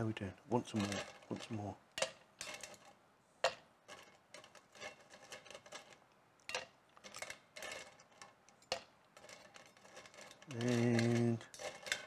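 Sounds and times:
ice cubes clinking: 3.9s - 12.0s.

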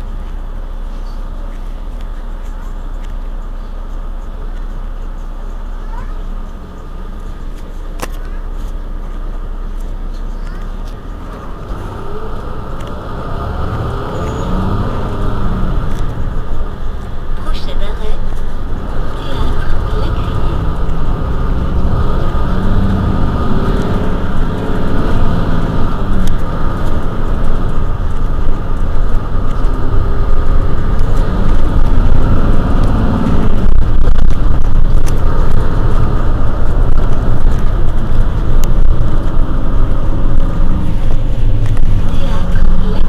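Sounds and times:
diesel bus engine idling: 0.0s - 43.0s.

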